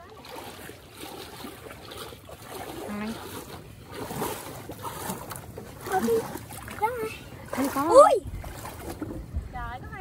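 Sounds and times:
water sloshing around wading legs: 0:00.0 - 0:10.0.

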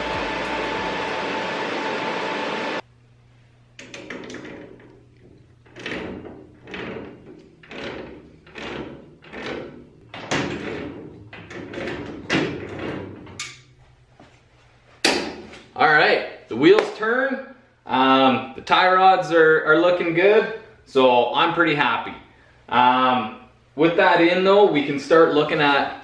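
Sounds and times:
knocks and clunks: 0:03.8 - 0:13.6.

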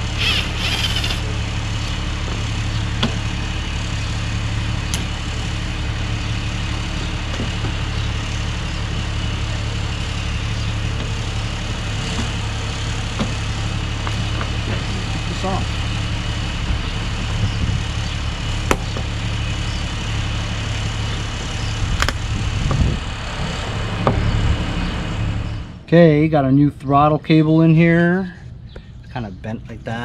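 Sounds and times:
whirring burst: 0:00.0 - 0:01.4
low mechanical hum: 0:00.0 - 0:30.0.

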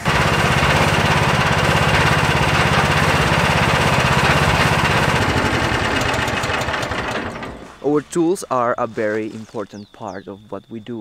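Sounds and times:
small engine running: 0:00.0 - 0:07.8.

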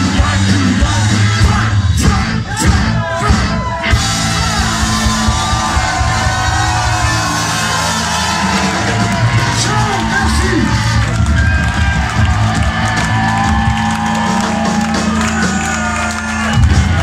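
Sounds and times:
yelled vocals: 0:00.0 - 0:13.5
live rock band playing: 0:00.0 - 0:17.0.

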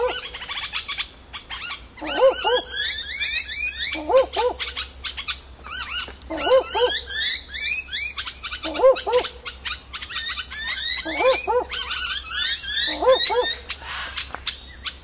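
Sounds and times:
owl barking: 0:00.0 - 0:00.9, 0:01.6 - 0:14.3
birds chirping: 0:00.0 - 0:15.0.

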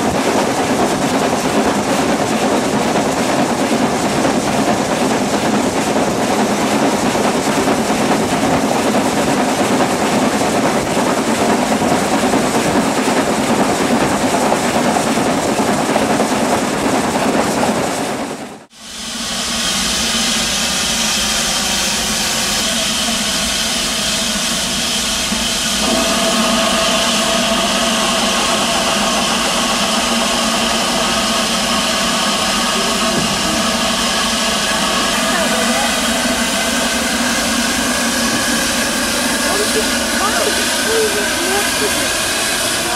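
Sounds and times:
train running rumble: 0:00.0 - 0:42.9
steam hissing from locomotive: 0:18.8 - 0:42.9.

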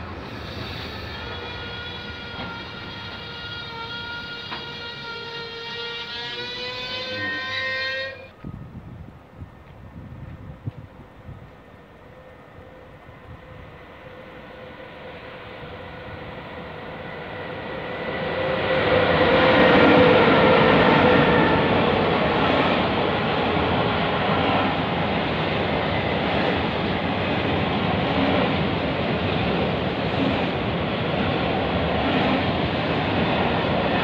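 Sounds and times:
locomotive whining tones: 0:00.0 - 0:08.6
train wheels rumbling on rails: 0:00.0 - 0:34.0.

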